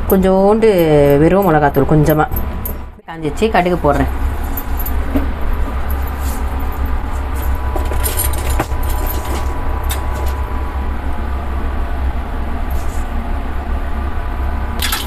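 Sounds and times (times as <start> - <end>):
steady low rumble: 0.0 - 14.8.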